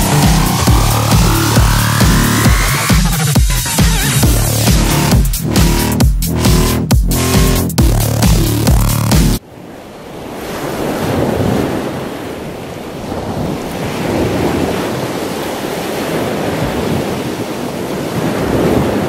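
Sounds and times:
ocean surf on shore: 0:00.0 - 0:04.2, 0:09.4 - 0:19.0.

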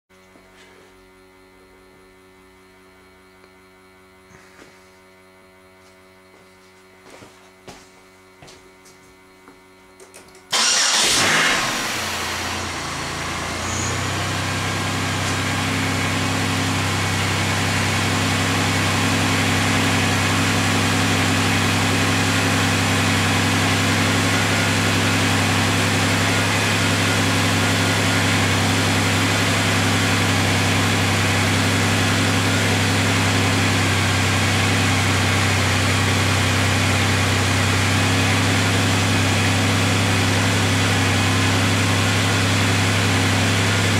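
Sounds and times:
car engine starting and idling: 0:10.5 - 0:43.9.

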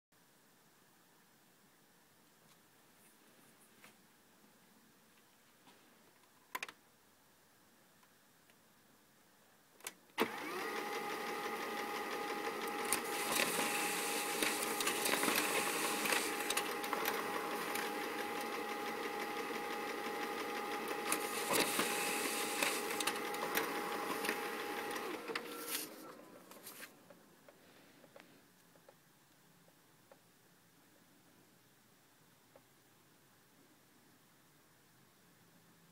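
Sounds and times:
printer clicks: 0:09.8 - 0:26.2
printer motors whining: 0:10.2 - 0:26.6.

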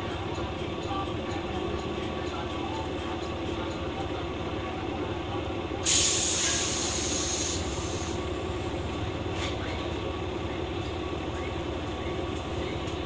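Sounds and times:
diesel railcar idling: 0:00.0 - 0:13.0
compressed air hissing: 0:05.9 - 0:08.2.

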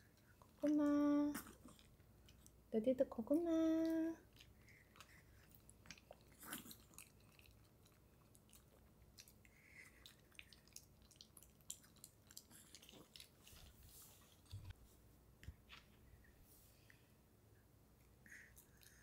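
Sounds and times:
dogs chewing food: 0:03.6 - 0:14.8.

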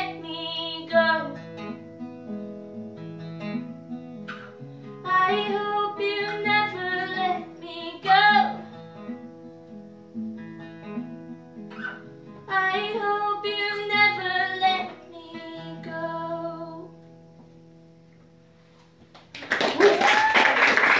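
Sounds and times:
woman singing: 0:00.0 - 0:01.4, 0:05.0 - 0:08.7, 0:12.5 - 0:16.9
acoustic guitar chords: 0:00.0 - 0:19.1.

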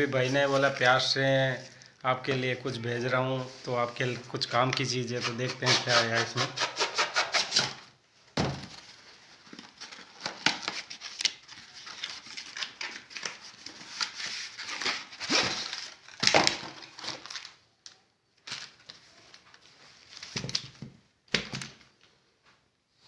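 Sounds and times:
cardboard packaging rubbing and scraping: 0:05.1 - 0:07.8, 0:13.4 - 0:16.1.

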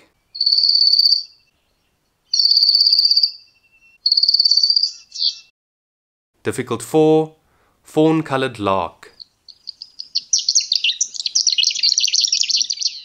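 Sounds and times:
bird singing high rapid trills: 0:00.1 - 0:05.5, 0:09.2 - 0:13.0.

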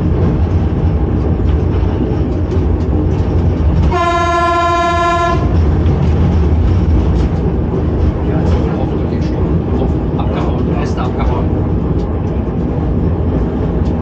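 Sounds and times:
railcar rumbling along track: 0:00.0 - 0:14.0
railcar warning horn blast: 0:03.8 - 0:05.7.

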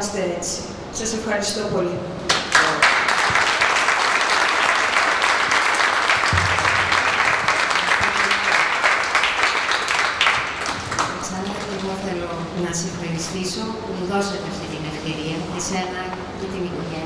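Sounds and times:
audience applauding: 0:02.3 - 0:12.0.

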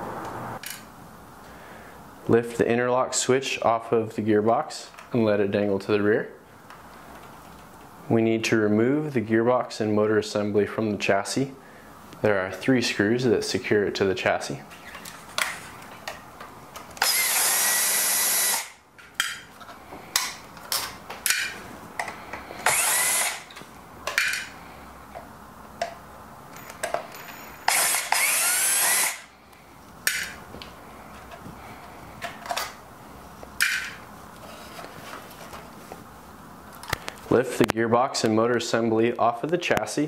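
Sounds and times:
power screwdriver whirring: 0:17.0 - 0:18.8, 0:22.6 - 0:23.6, 0:27.6 - 0:29.3.

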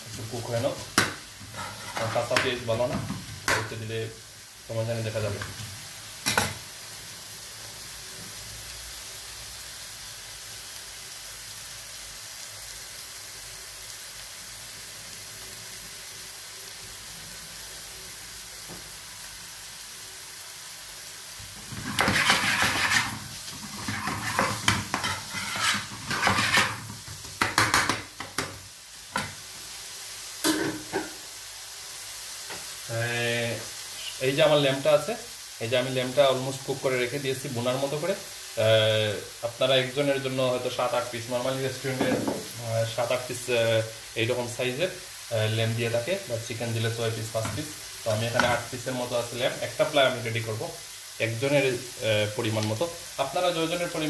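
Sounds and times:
onions sizzling in a pan: 0:00.0 - 0:54.0
metal spoon scraping a pan: 0:01.0 - 0:02.6, 0:21.6 - 0:28.4.

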